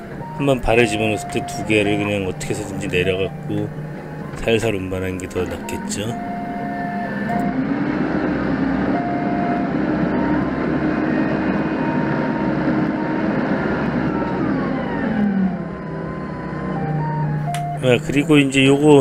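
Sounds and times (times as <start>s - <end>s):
forklift engine running: 0.0s - 19.0s.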